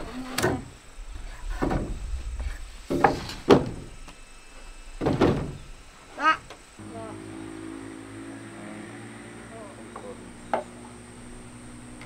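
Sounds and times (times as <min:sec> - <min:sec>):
wooden beams knocking and thudding: 0:01.5 - 0:04.0, 0:05.0 - 0:05.7.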